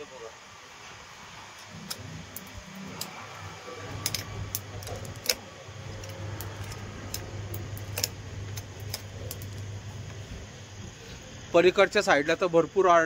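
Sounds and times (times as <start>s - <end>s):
low hum: 1.3s - 11.6s.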